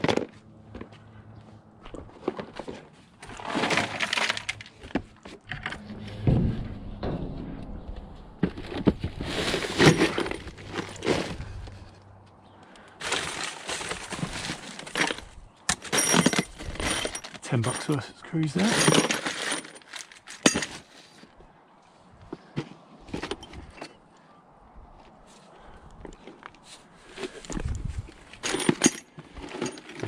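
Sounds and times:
scrap metal clattering and clinking: 2.0s - 12.0s, 13.0s - 21.2s, 23.1s - 24.0s, 27.1s - 30.0s.

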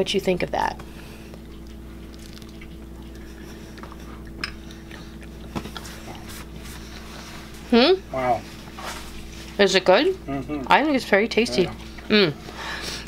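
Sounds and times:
steady low hum: 0.0s - 13.0s
biting into bread: 1.4s - 6.3s.

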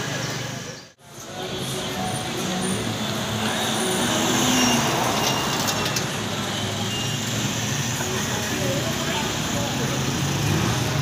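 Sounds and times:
busy street traffic: 0.0s - 11.0s.

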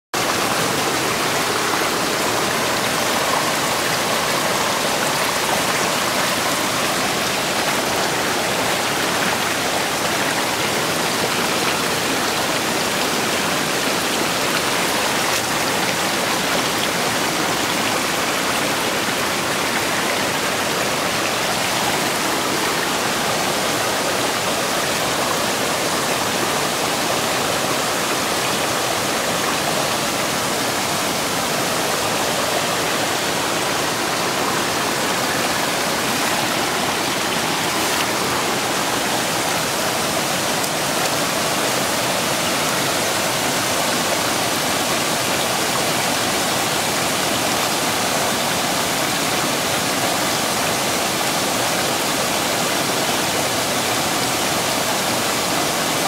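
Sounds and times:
stream rushing over rocks: 0.1s - 56.0s.

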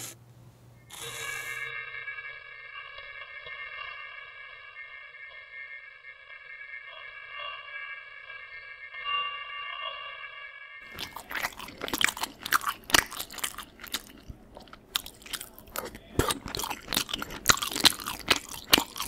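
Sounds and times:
chewing crunchy food: 10.9s - 19.0s.

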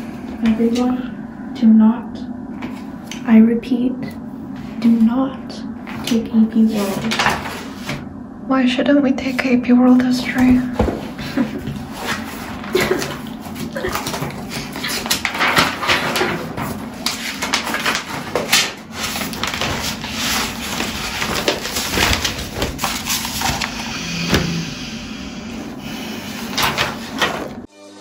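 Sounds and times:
woman laughing hysterically: 11.2s - 11.8s, 12.7s - 14.1s
notebook pages flipping: 11.7s - 23.9s, 26.4s - 27.6s
woman sharp inhale: 23.8s - 26.4s.

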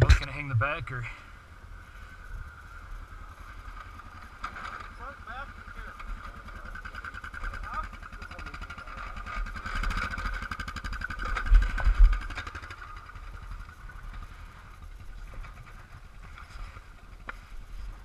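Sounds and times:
loud low thumps: 0.0s - 1.0s
atv engine idling: 0.0s - 18.0s.

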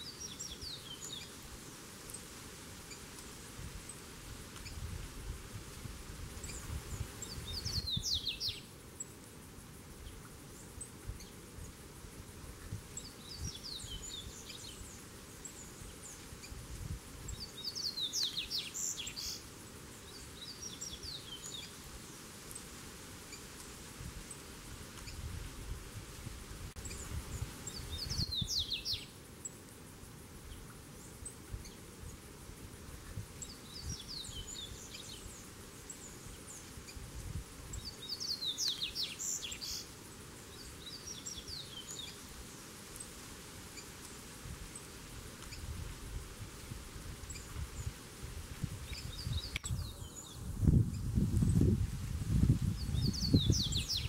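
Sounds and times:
bird twittering song: 0.0s - 1.4s, 6.4s - 9.1s, 12.9s - 16.6s, 17.2s - 21.8s, 26.8s - 29.6s, 30.4s - 31.8s, 33.4s - 37.0s, 37.7s - 43.1s, 47.2s - 47.9s, 48.8s - 51.7s, 52.5s - 54.0s.

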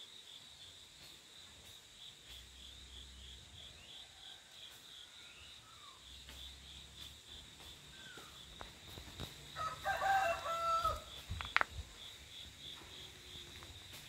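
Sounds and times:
crickets chirping: 0.0s - 14.0s
rooster crowing: 9.5s - 11.2s.

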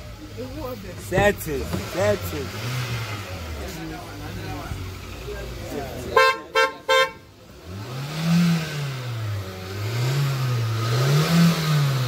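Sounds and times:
car engine revving: 0.0s - 12.0s
car horn toot: 6.0s - 7.4s.

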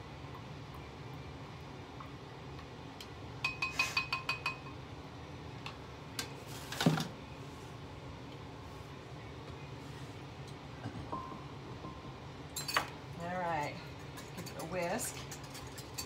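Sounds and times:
utensil clinking on glass: 12.6s - 12.9s.

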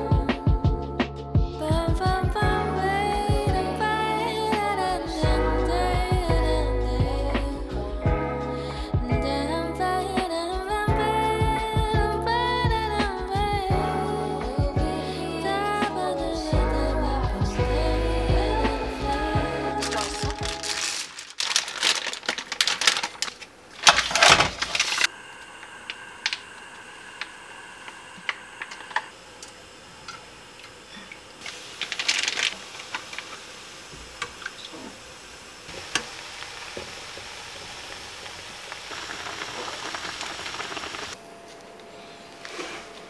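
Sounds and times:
background music: 0.0s - 21.2s
faint hum: 0.0s - 43.0s
clattering and rustling: 19.8s - 25.1s.

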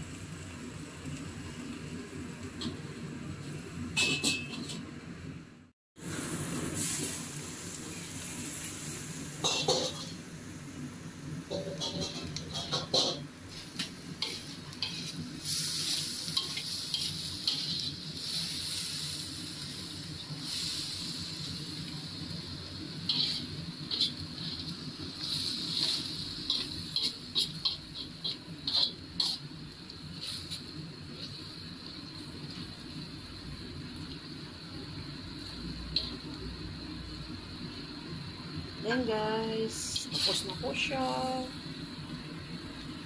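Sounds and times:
stir-fry sizzling in pan: 0.0s - 5.2s, 6.0s - 43.0s
spatula scraping pan: 11.5s - 13.2s, 14.2s - 15.2s, 16.4s - 18.0s, 23.1s - 24.7s, 25.7s - 29.5s, 39.9s - 40.6s.

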